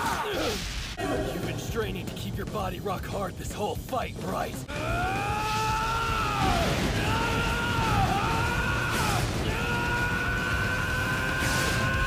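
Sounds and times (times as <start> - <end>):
background music: 0.0 - 12.0
low rumble of explosions: 4.8 - 12.0
young man battle yelling: 4.8 - 12.0.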